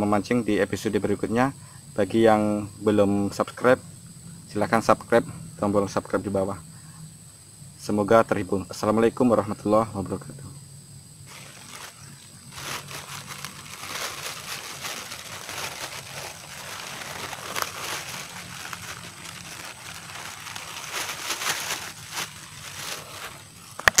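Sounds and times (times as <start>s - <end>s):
plastic bag rustling: 11.2s - 24.0s.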